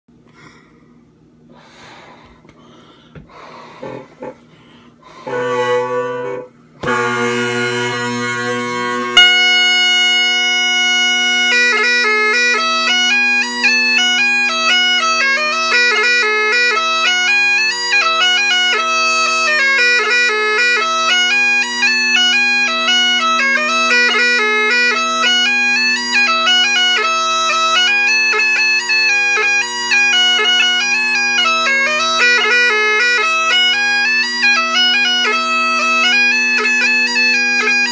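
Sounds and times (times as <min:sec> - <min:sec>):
bagpipe drones: 0:03.2 - 0:37.9
bagpipe chanter tune: 0:05.0 - 0:37.9.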